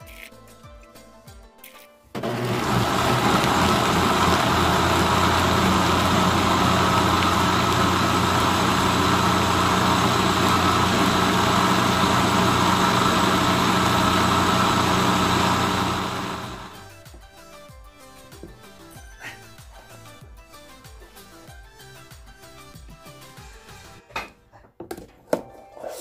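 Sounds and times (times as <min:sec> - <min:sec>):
blender grinding at high speed: 0:02.2 - 0:16.8.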